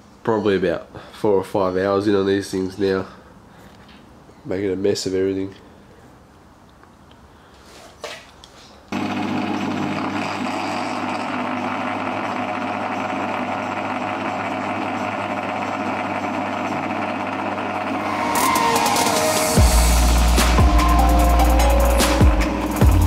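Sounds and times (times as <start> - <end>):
milling machine cutting metal: 9.0 - 23.0.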